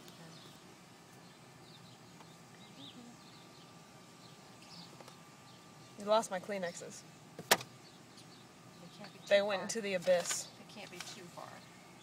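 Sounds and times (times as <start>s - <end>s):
faint bird chirps: 1.2s - 6.0s.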